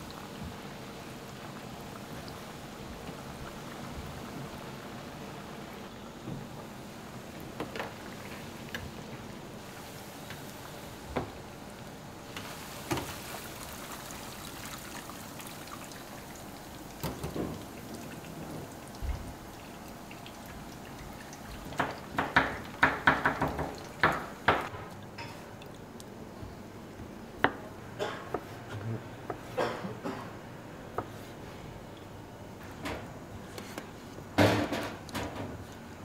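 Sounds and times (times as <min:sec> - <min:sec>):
oil bubbling and sizzling: 0:00.0 - 0:26.5.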